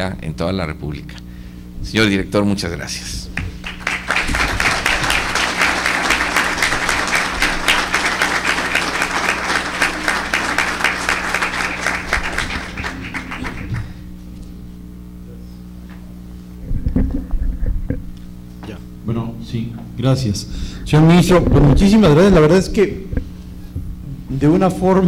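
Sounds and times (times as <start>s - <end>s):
steady low hum: 0.0s - 25.0s
audience applause: 3.5s - 14.0s.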